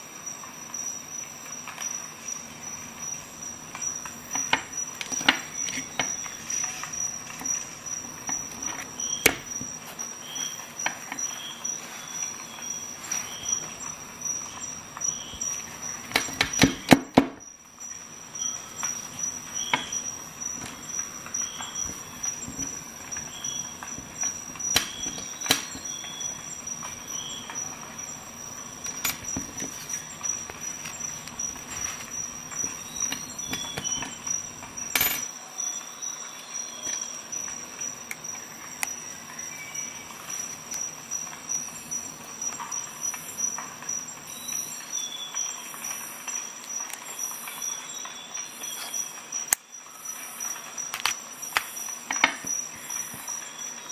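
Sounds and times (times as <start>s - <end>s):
steady high whine: 0.0s - 53.9s
fabric rustling and scraping: 5.2s - 14.0s, 29.0s - 34.2s
sharp clicks and knocks: 15.0s - 17.5s, 19.7s - 26.1s.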